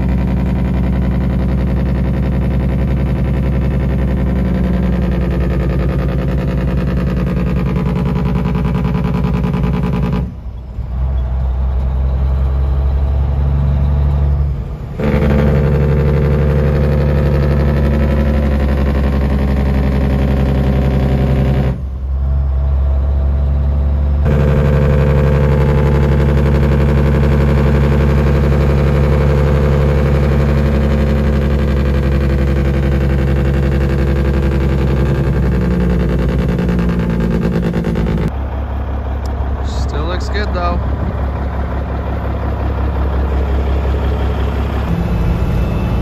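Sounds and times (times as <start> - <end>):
truck engine brake: 0.0 - 46.0.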